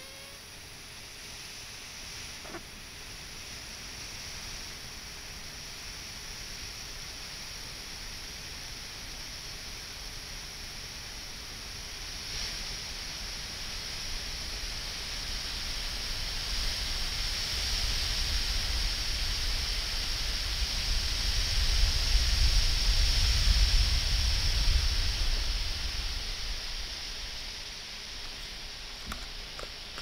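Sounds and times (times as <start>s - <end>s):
air hissing from balloon: 0.0s - 7.8s.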